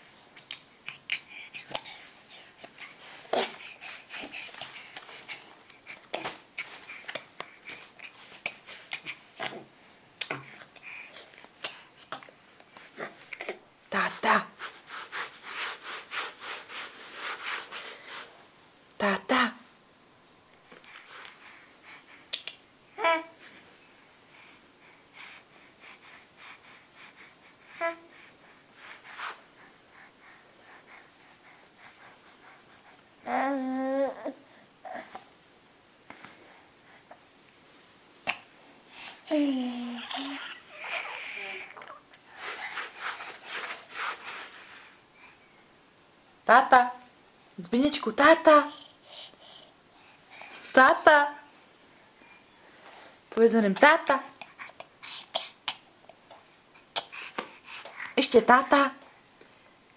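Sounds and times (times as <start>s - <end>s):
rustles: 0.0s - 9.7s, 35.0s - 45.1s
baby whispering and mouth noises: 0.4s - 14.6s, 20.6s - 35.4s, 38.1s - 43.9s, 48.2s - 51.5s, 53.3s - 58.4s
infant vocalizing: 39.3s - 42.0s.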